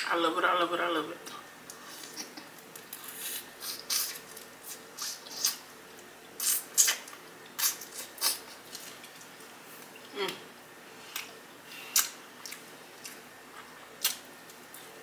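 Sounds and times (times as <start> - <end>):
wet eating mouth sounds: 2.9 - 5.7, 6.3 - 15.0
mouth smacks: 6.4 - 8.8, 11.9 - 13.2.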